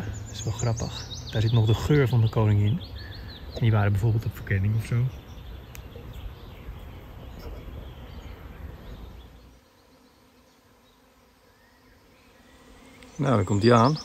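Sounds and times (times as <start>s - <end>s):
honeybees buzzing: 0.0s - 14.0s.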